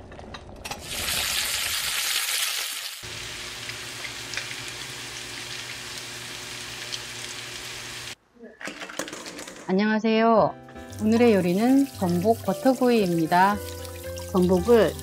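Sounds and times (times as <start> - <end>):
food sizzling in a frying pan: 0.8 - 8.2, 10.8 - 15.0.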